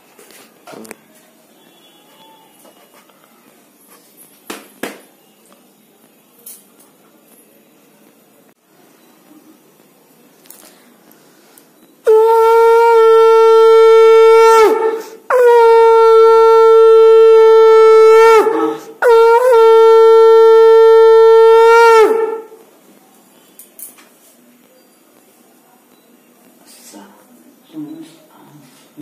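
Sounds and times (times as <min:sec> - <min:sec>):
conch shell blasts: 0:12.1 - 0:22.6.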